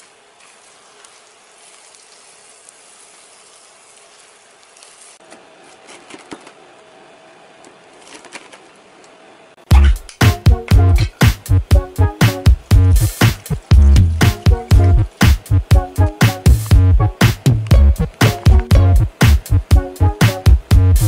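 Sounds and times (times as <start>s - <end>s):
oil sizzling in frying pan: 0.0s - 5.2s, 11.3s - 18.6s
loud music with a beat: 9.7s - 21.0s.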